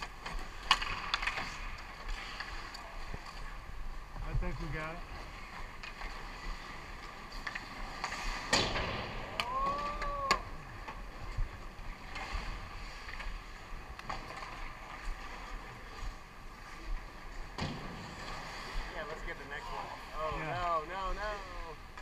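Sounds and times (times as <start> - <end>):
sticks and puck clacking: 0.0 - 3.5
skates scraping ice: 0.0 - 22.0
drawn-out shout: 9.2 - 10.7.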